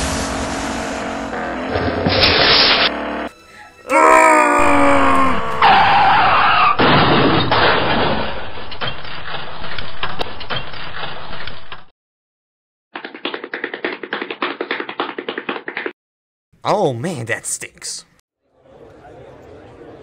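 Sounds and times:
rapid sharp taps: 13.0s - 15.9s.

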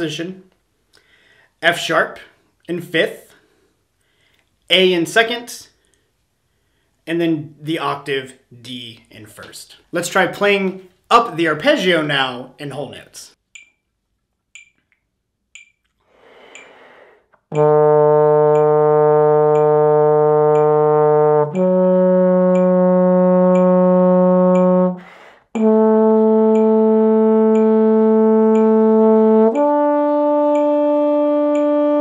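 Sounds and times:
metronome ticking: 13.4s - 32.0s
breath drawn: 16.0s - 17.5s, 25.0s - 25.6s
trombone playing arpeggio: 17.5s - 32.0s.

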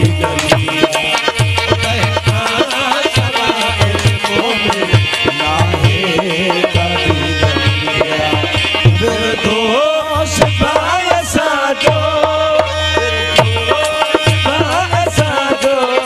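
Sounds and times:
hand drum beat: 0.0s - 9.3s
harmonium chords: 0.0s - 16.0s
person singing: 0.0s - 16.0s.

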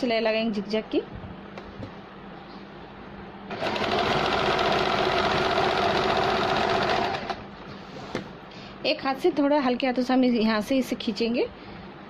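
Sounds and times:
sewing machine stitching: 3.5s - 7.4s.

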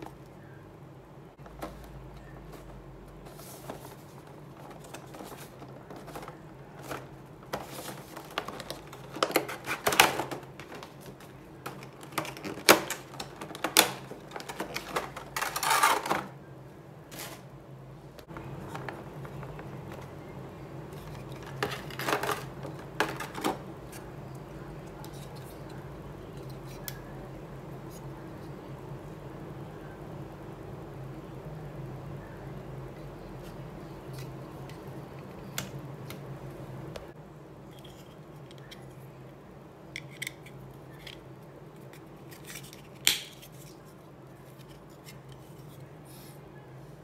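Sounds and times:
faint steady hum: 0.0s - 47.0s
plastic blister tray crackling: 1.4s - 16.4s, 18.2s - 27.0s.

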